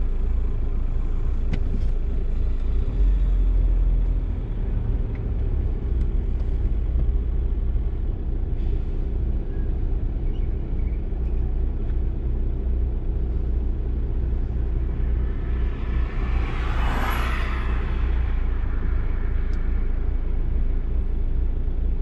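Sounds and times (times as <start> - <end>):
low rumble of road traffic: 0.0 - 22.0.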